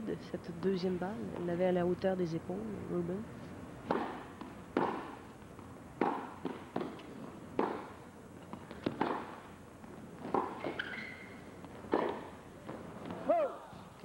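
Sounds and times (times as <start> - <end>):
ball bouncing on court: 3.8 - 13.3
racket striking tennis ball: 3.8 - 13.3.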